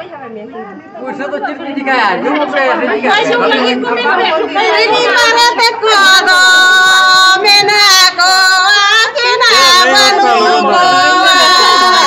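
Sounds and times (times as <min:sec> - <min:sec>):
women singing together: 0:02.2 - 0:12.0.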